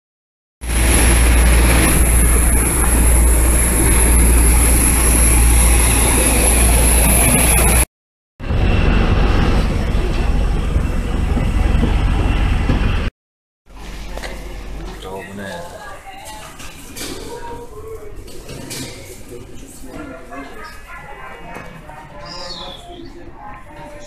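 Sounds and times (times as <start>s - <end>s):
jet aircraft rumble and whine: 0.6s - 13.1s.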